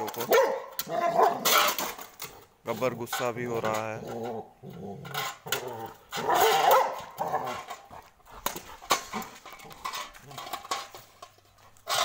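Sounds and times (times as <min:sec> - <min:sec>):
metal plate scraping on concrete: 0:00.0 - 0:12.0
dog growling and snarling: 0:04.0 - 0:10.5.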